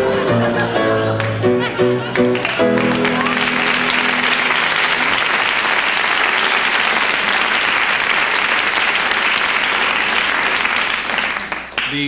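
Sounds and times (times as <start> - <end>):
audience applauding: 0.6 - 12.0.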